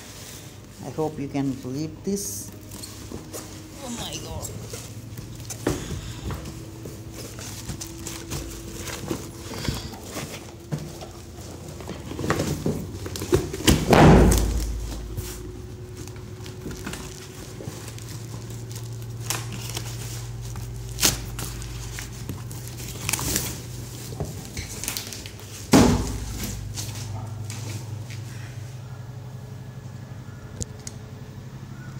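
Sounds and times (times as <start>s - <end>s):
plastic wrap rustling: 0.0s - 28.7s
steady low hum: 0.0s - 31.9s
cardboard scraping: 4.5s - 28.2s.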